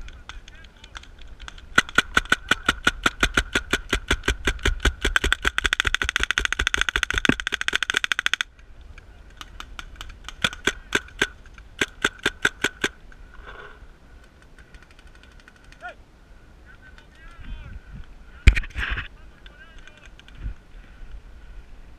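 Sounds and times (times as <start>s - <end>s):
paintball marker firing: 0.9s - 8.5s, 9.4s - 13.0s.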